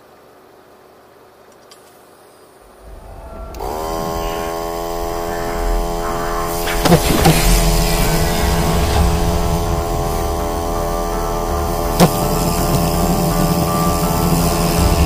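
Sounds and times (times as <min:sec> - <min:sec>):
air compressor buzzing hum: 0:03.0 - 0:15.0.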